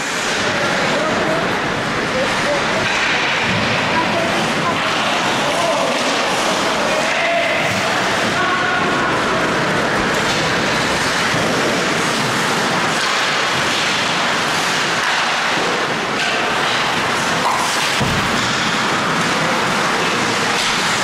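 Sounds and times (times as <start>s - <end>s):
skate blades scraping ice: 9.9s - 21.0s.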